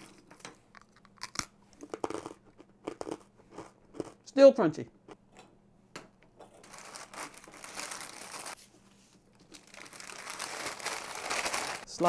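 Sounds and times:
paper crinkling and rustling: 6.6s - 11.9s.

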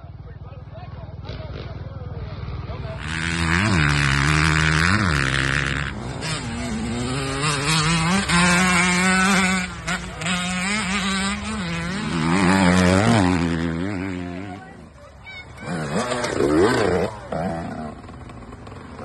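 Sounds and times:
off-road racing engines revving: 0.0s - 19.0s.

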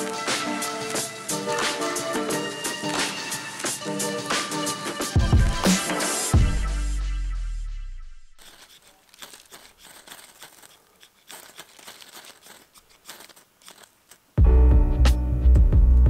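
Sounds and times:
background music: 0.0s - 8.2s, 14.4s - 16.0s
knife scraping ferrocerium rod: 8.4s - 14.4s.

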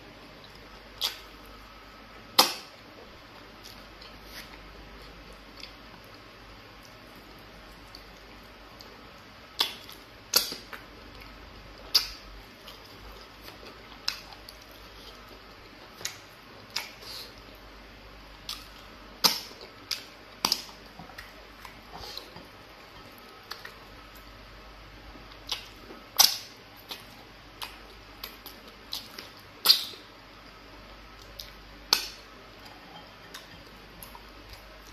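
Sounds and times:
wet mouth smacks and clicks: 1.0s - 1.2s.

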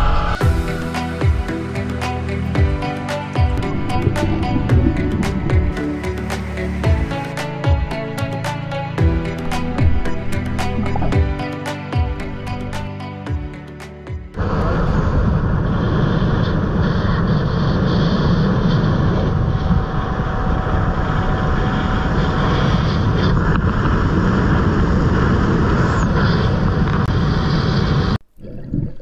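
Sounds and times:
motorboat engine: 3.4s - 7.0s
wind noise: 3.6s - 5.9s, 14.4s - 29.0s.

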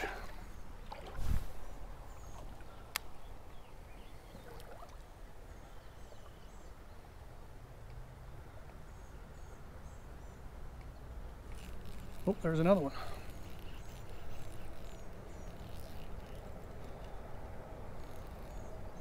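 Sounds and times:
faint bird chirps: 0.0s - 7.1s.

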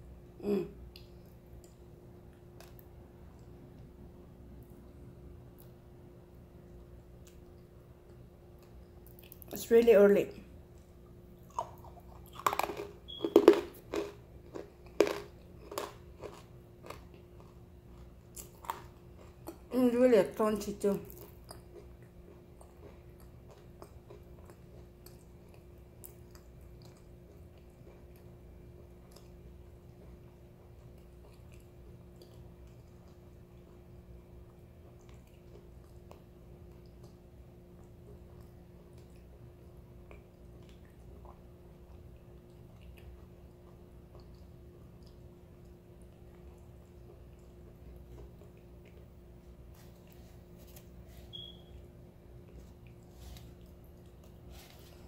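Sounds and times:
crunching and chewing clay: 10.7s - 19.7s, 21.0s - 51.6s.

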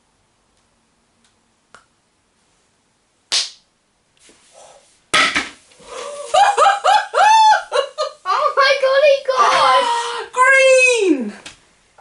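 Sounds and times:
excited wordless exclamations: 6.9s - 11.3s.

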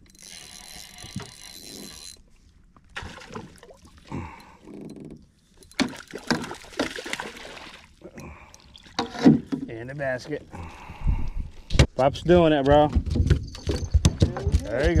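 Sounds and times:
fish splashing at water surface: 5.8s - 7.9s.

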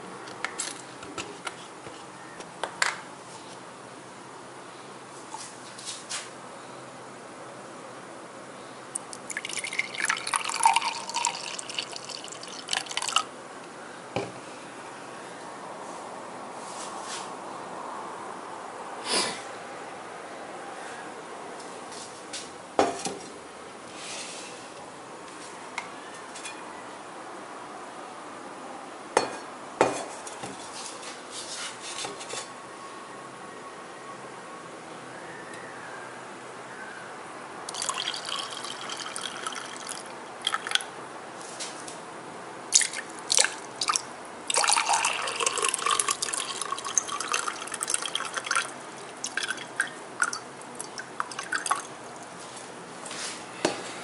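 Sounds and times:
liquid pouring into a glass: 9.1s - 13.3s, 37.7s - 40.8s, 42.8s - 51.9s.

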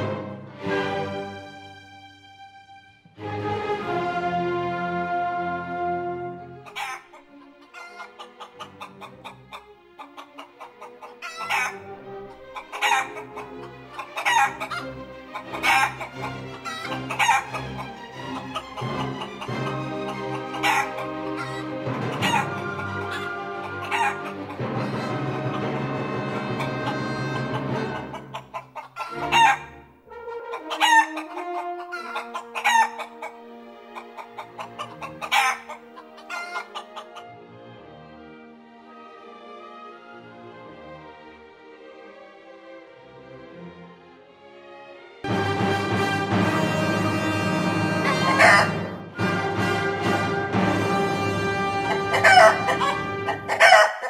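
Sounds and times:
orchestral music: 0.0s - 54.0s
chickens squawking: 6.6s - 37.3s, 47.2s - 49.1s, 51.6s - 54.0s.

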